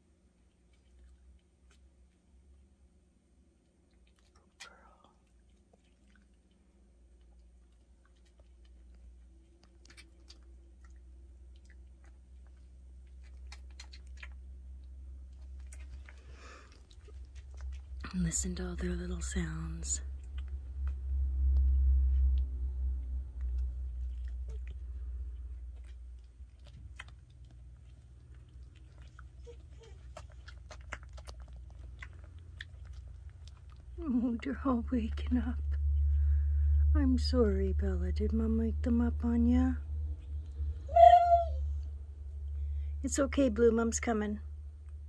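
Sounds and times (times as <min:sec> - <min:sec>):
puppies suckling wet clicks: 0:00.0 - 0:02.8, 0:03.5 - 0:36.9
steady low hum: 0:00.0 - 0:45.0
puppy squeaks: 0:40.9 - 0:41.6.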